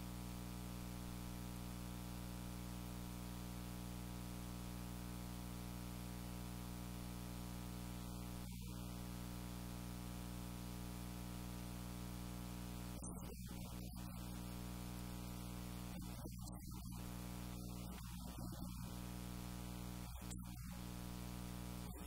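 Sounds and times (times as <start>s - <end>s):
electrical hum: 0.0s - 22.0s
faint hiss: 11.6s - 22.0s.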